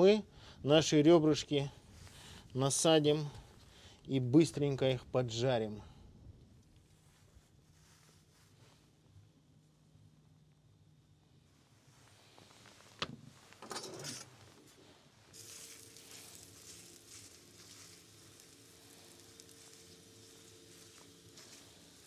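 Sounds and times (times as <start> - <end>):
ribs sizzling: 15.4 - 22.0.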